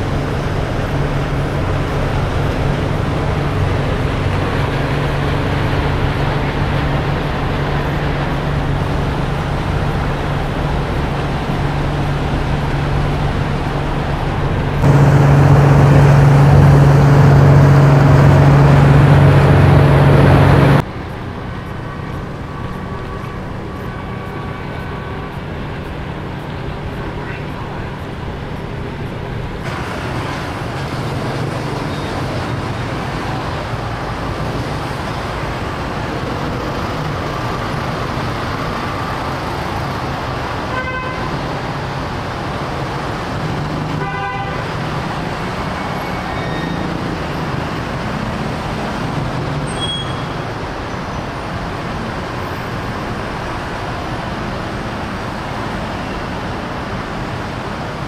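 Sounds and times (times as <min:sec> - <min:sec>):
ferry engine rumble: 0:00.0 - 0:58.0
vehicles idling: 0:00.0 - 0:58.0.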